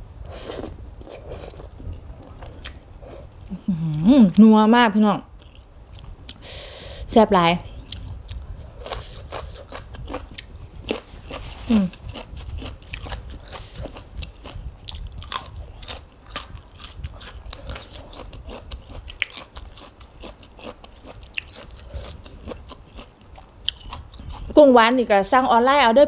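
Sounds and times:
chewing food: 0:00.5 - 0:03.5, 0:07.7 - 0:24.6.

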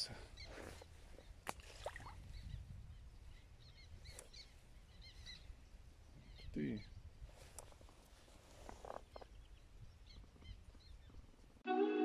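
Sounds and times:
faint bird chirps: 0:02.0 - 0:07.8.

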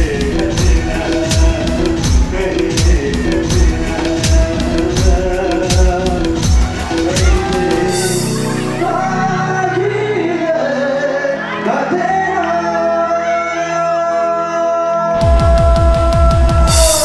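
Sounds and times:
drum beat: 0:00.0 - 0:09.1, 0:15.2 - 0:17.0
held chords: 0:00.0 - 0:11.7
person singing: 0:00.0 - 0:17.0.

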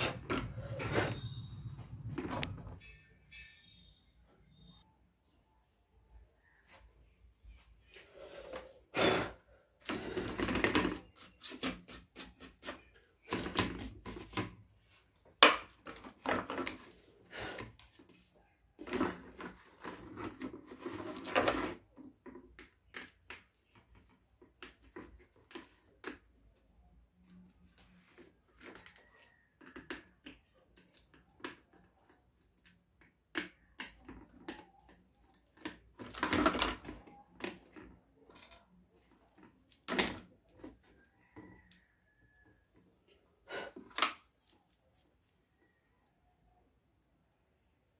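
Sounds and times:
plastic scraping and rubbing: 0:18.8 - 0:23.0.

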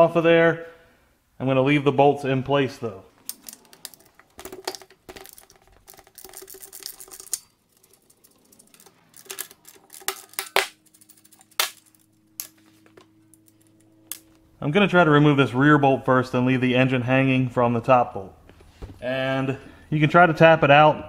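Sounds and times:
metallic clicks and clinks: 0:03.2 - 0:12.6.

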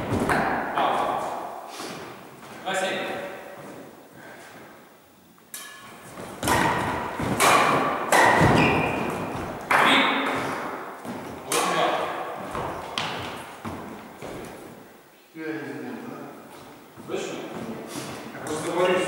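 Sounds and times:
rackets hitting shuttlecock with echo: 0:00.1 - 0:02.2, 0:05.5 - 0:14.8
footsteps thudding on wooden floor: 0:12.4 - 0:14.6.

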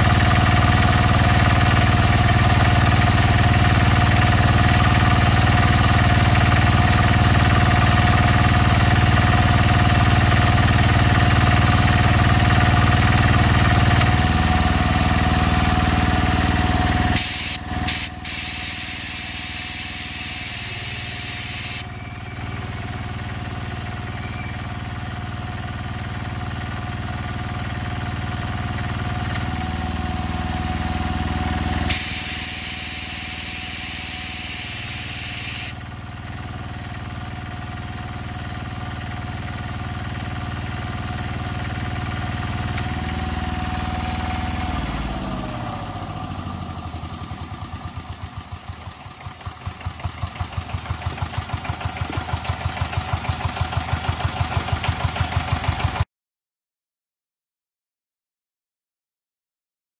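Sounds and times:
diesel engine running: 0:00.0 - 0:56.0
compressed air hissing: 0:17.2 - 0:21.8, 0:31.9 - 0:35.8.

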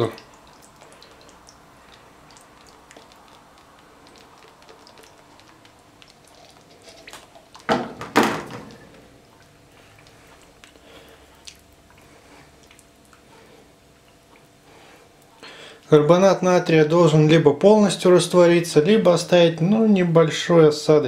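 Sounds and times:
faint crackling ticks: 0:00.0 - 0:07.7, 0:09.4 - 0:13.3, 0:13.9 - 0:14.6
loud knocks: 0:07.7 - 0:08.8.

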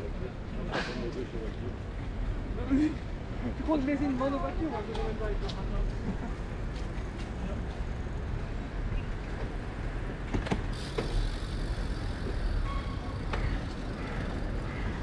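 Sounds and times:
wind and road rumble: 0:00.0 - 0:15.0
bicycle rattles: 0:05.0 - 0:15.0.

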